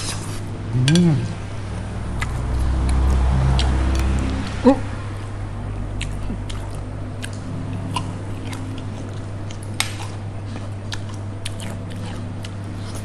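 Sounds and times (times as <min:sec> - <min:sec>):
close-up chewing: 0:06.0 - 0:13.0.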